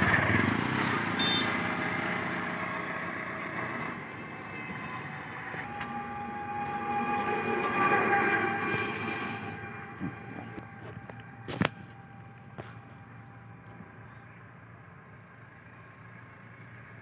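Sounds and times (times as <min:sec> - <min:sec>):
road vehicle passing: 0:00.0 - 0:17.0
steady held tone: 0:05.2 - 0:13.6.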